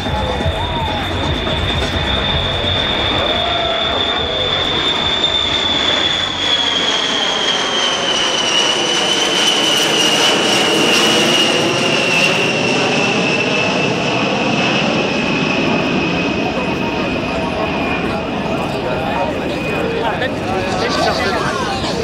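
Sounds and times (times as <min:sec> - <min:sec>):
jet bomber flyover whine: 0:00.0 - 0:22.0.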